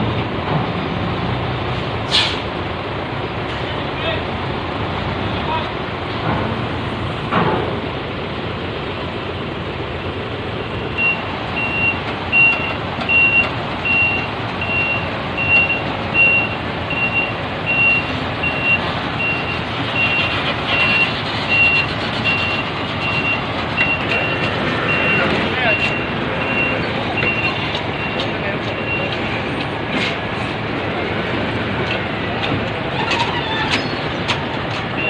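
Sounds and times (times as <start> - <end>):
truck engine: 0.0 - 35.0
truck reversing alarm beeping: 10.0 - 30.0.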